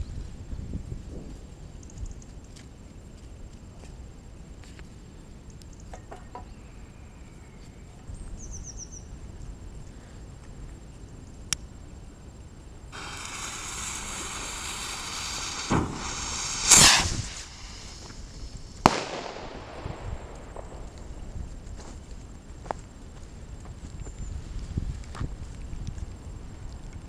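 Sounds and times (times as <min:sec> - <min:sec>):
firework fuse hissing: 0:12.9 - 0:22.5
firework pop: 0:13.0 - 0:21.7
firework bang: 0:13.0 - 0:22.0.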